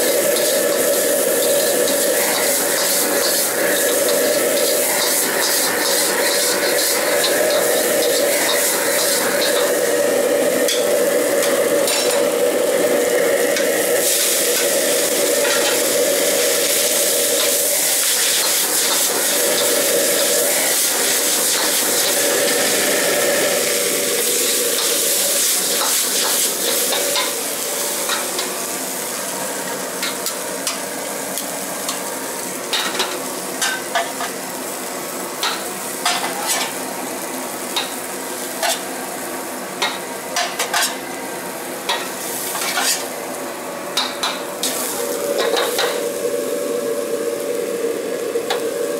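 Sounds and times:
food sizzling in a wok: 0.0 - 48.9
metal ladle scraping a wok: 42.5 - 43.1.

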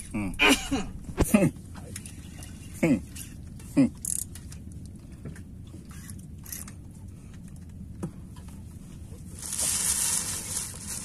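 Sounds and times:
wind and sea rumble: 0.0 - 11.0.

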